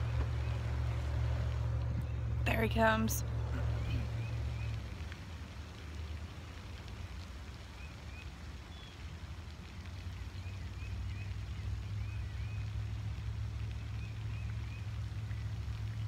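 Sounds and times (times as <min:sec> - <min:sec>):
small birds chirping: 0:00.0 - 0:05.2, 0:06.2 - 0:09.0, 0:09.6 - 0:16.0
low rumble: 0:00.0 - 0:06.9.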